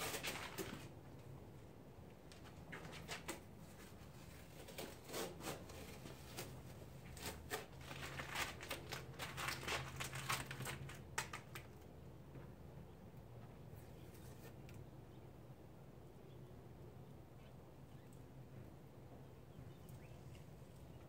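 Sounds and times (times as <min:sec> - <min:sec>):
tape ripping and crinkling: 0:00.0 - 0:00.9, 0:02.4 - 0:11.8.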